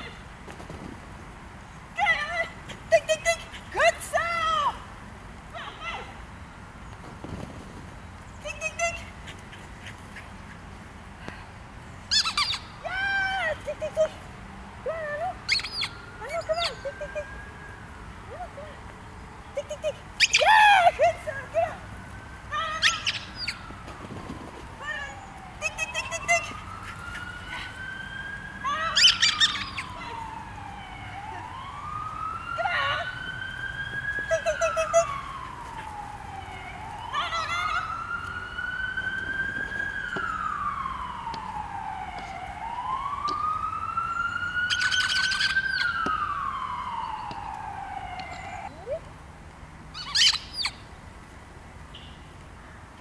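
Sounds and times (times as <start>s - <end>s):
siren wailing: 14.8s - 18.8s, 19.6s - 49.1s.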